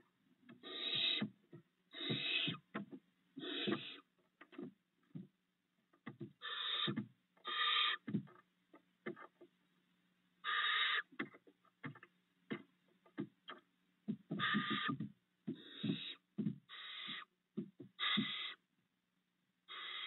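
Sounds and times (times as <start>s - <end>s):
owlets rasping screech calls: 0.6s - 1.3s, 2.0s - 2.6s, 3.4s - 4.0s, 6.4s - 8.1s, 10.4s - 11.1s, 14.4s - 15.0s, 15.6s - 17.3s, 18.0s - 18.6s, 19.7s - 20.0s.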